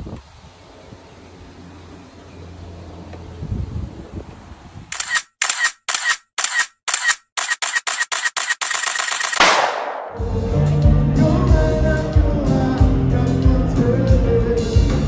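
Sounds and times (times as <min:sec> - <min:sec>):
short sharp clicks: 0:04.9 - 0:09.8
music: 0:10.2 - 0:15.0.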